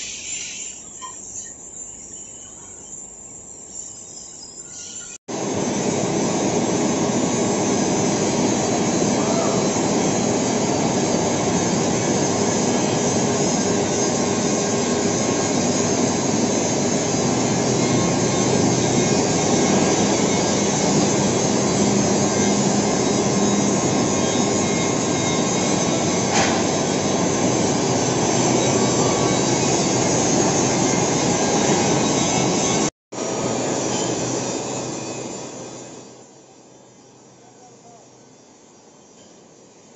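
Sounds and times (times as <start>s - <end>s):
lathe cutting metal: 6.8s - 36.1s.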